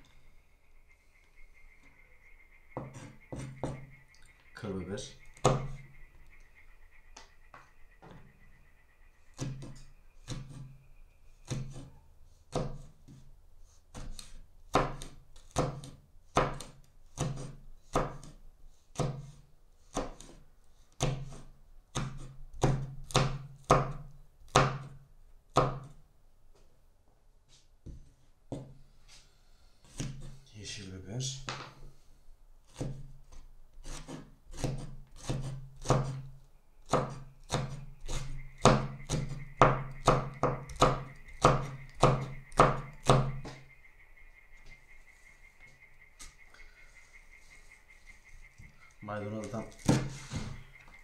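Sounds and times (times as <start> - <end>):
knife chopping on wooden board: 2.8 - 3.9, 5.4 - 5.8, 9.4 - 10.7, 11.4 - 13.3, 13.9 - 20.4, 21.0 - 26.0, 29.9 - 30.4, 32.7 - 33.1, 33.8 - 36.3, 36.9 - 43.6, 49.4 - 50.6.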